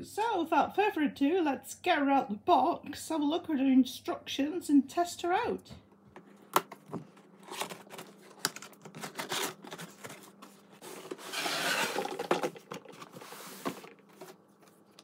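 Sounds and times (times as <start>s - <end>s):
cardboard scraping and rustling: 7.2s - 14.9s.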